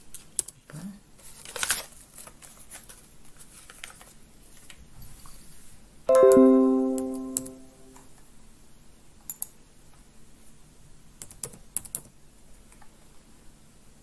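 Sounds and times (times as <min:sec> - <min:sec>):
notification chime: 0:06.1 - 0:07.9.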